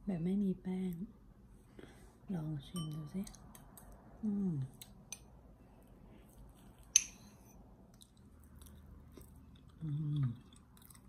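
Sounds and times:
metal fork clinking on ceramic: 0:02.8 - 0:03.1.

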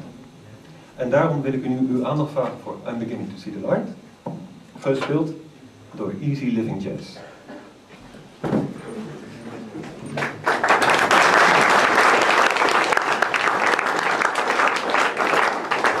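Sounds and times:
audience applauding: 0:10.1 - 0:16.0.

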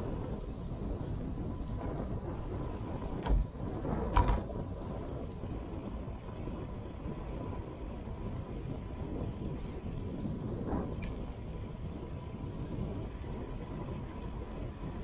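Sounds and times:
wind and road noise rumble: 0:00.0 - 0:15.0.

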